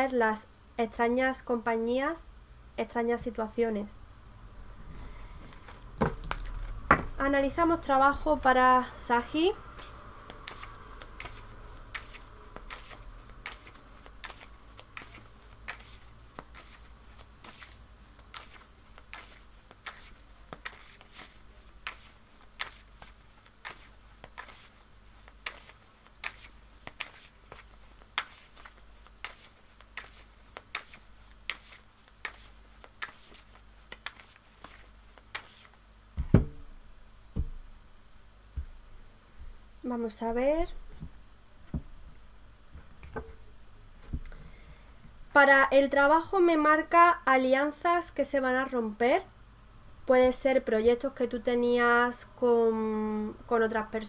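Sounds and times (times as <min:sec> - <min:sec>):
cards being shuffled: 0:05.0 - 0:07.2, 0:09.7 - 0:35.8
cards thumping on cloth table: 0:05.6 - 0:07.2, 0:36.2 - 0:36.6.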